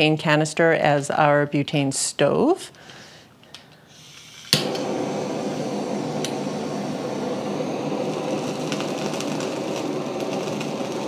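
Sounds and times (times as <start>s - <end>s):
torch flame hissing: 3.9s - 11.0s
torch igniting click: 3.9s - 11.0s.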